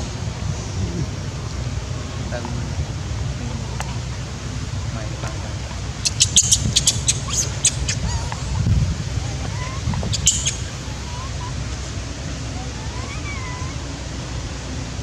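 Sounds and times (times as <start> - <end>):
steady low rumble: 0.0 - 15.0
baby monkey shrill squeaks: 6.0 - 8.6, 9.2 - 11.6, 12.5 - 13.8
baby monkey whimpering: 6.0 - 14.2.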